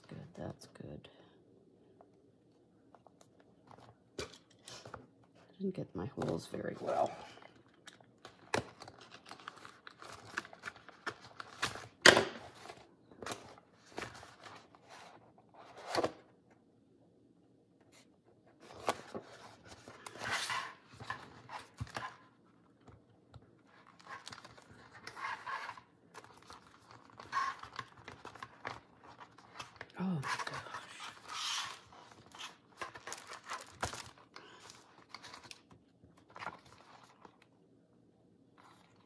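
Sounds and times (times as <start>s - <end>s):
paper rustling and crinkling: 6.2s - 16.2s, 18.6s - 22.3s, 23.6s - 37.5s, 38.6s - 39.0s.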